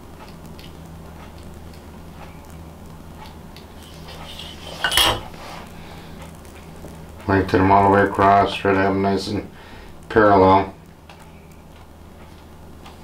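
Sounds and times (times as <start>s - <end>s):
steady low hum: 0.0s - 13.0s
ruler clattering on glass: 4.7s - 5.3s.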